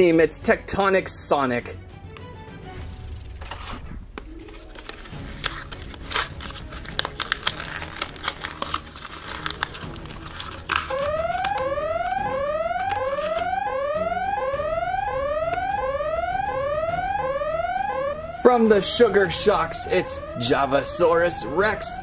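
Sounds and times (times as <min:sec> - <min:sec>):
plastic foil pack crinkling and tearing: 0:04.4 - 0:11.6.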